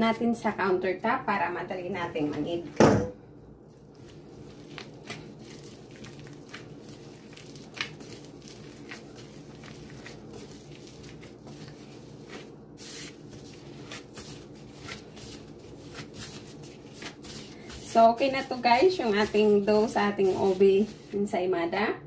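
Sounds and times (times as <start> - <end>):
dough being kneaded: 0.0 - 0.8, 3.5 - 21.6.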